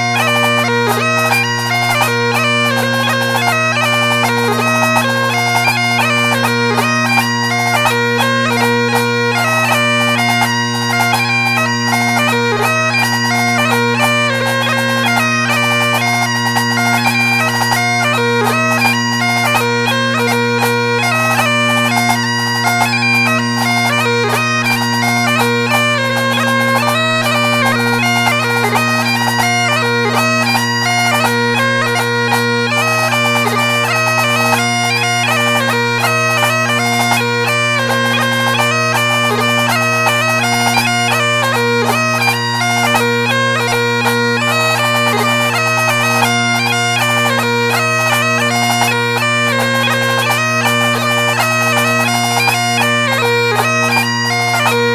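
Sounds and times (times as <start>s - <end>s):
bagpipe playing a tune: 0.0s - 54.9s.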